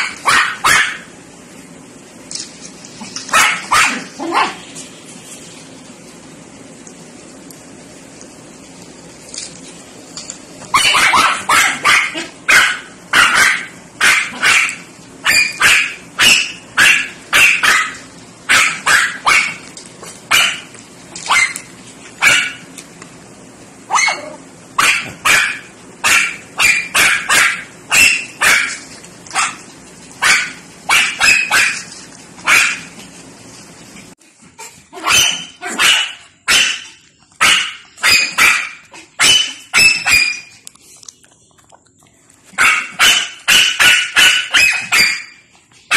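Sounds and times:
dog barking: 0.0s - 1.1s, 3.3s - 4.6s, 10.7s - 19.6s, 20.3s - 21.6s, 22.2s - 22.6s, 23.9s - 29.6s, 30.2s - 32.9s, 34.9s - 40.5s, 42.6s - 45.4s.

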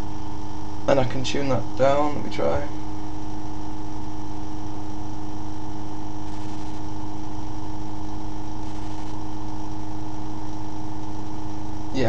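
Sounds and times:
motor humming: 1.8s - 12.0s.

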